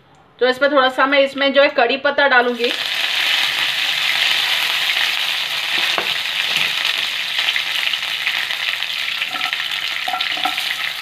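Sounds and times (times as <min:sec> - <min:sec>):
leaves sizzling in hot oil: 0:02.4 - 0:11.0.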